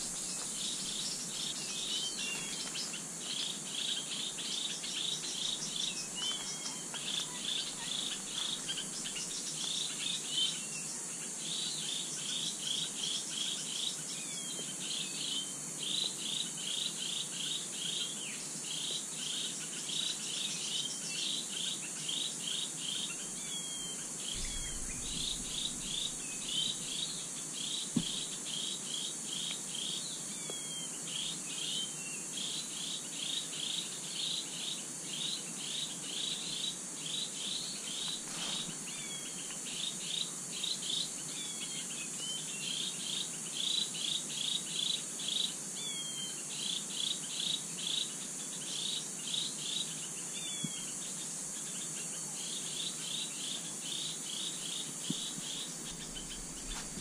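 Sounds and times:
wild bird calls: 0.0s - 14.5s, 18.8s - 32.0s, 51.6s - 57.0s
high insect drone: 0.0s - 57.0s.

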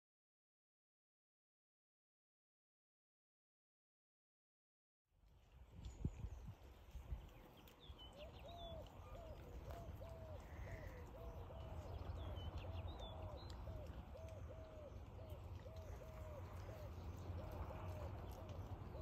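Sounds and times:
low wind rumble: 5.2s - 19.0s.

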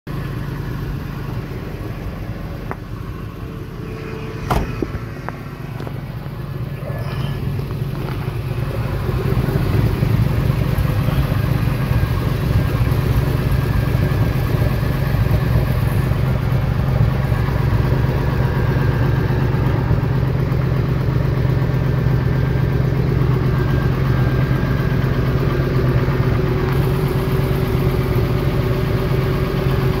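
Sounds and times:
van engine idling: 0.1s - 30.0s.

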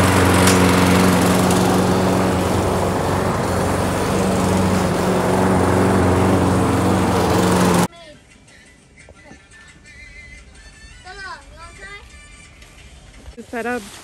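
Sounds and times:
lawn mower engine running: 0.0s - 7.9s.

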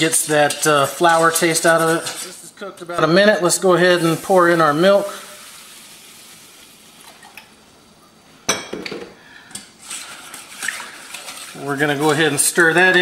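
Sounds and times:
whisk scraping a metal pan: 0.0s - 2.6s, 9.8s - 13.0s
milk pouring with faint hiss: 0.0s - 8.1s.

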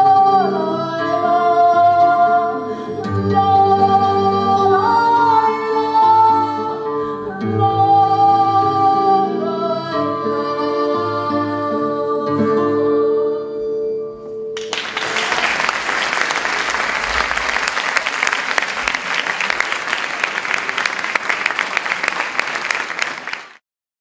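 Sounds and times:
acoustic guitar: 0.0s - 14.9s
audience applause: 14.6s - 23.6s.

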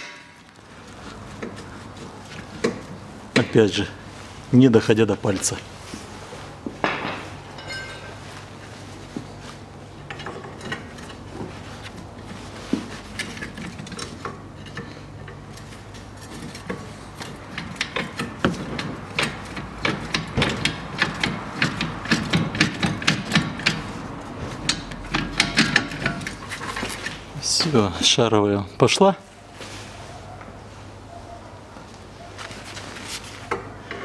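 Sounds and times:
metal clicks and knocks: 13.2s - 23.9s, 24.5s - 27.2s.

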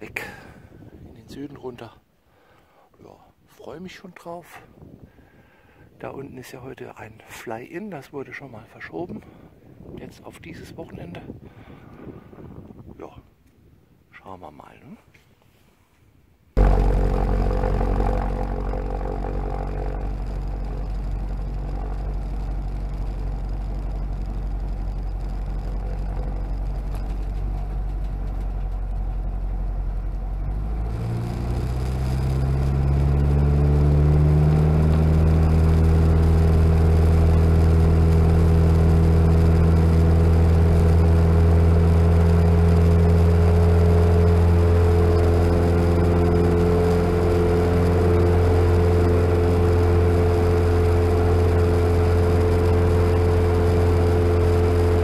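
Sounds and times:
light aircraft engine droning: 16.6s - 55.0s.

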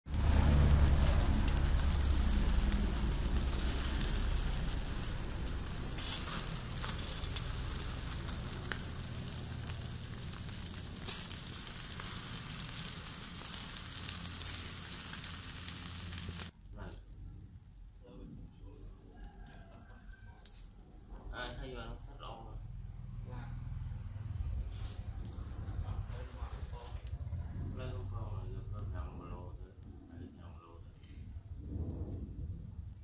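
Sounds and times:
sharp crackles: 0.0s - 22.7s, 23.9s - 33.0s
meat sizzling on a grill: 0.1s - 16.6s
low rumble: 0.1s - 19.0s, 20.9s - 33.0s.

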